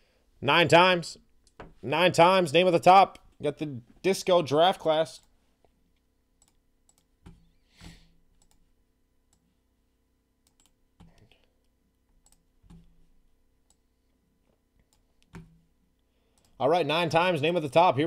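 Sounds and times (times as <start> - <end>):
computer mouse clicking: 6.4 - 8.7, 10.4 - 11.3, 12.2 - 12.9.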